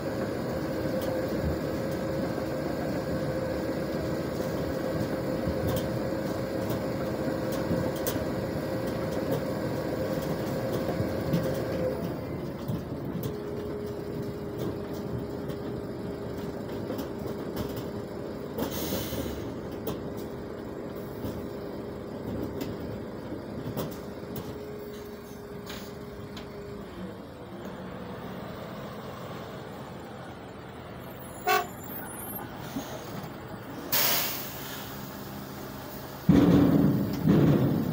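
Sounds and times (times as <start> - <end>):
air hiss: 33.9 - 36.2
beets knocking into truck: 36.3 - 37.9.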